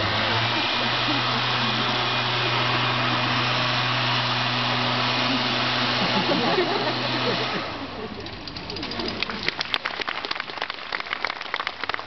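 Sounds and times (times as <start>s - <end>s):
small petrol engine running: 0.0s - 12.0s.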